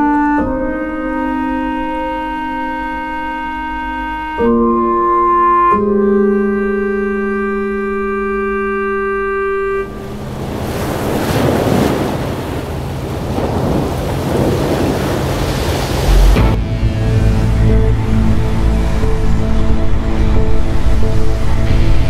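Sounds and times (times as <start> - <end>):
organ-like chords: 0.0 - 10.8
storm and sea rumbling: 9.8 - 22.0.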